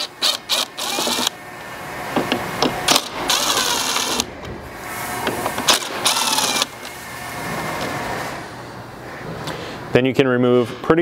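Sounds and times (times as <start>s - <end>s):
cordless drill motor whine: 0.0s - 1.3s, 3.2s - 4.3s, 6.0s - 6.7s.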